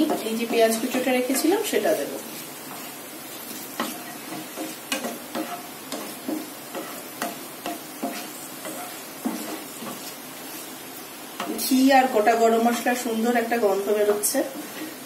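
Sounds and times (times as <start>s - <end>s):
spatula scraping a pan: 0.0s - 13.0s
spices sizzling in oil: 0.0s - 15.0s.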